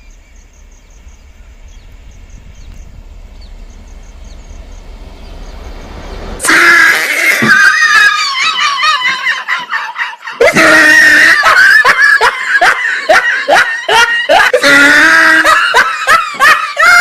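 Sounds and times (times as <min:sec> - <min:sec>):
high-pitched screaming and cackling: 0:06.4 - 0:17.0.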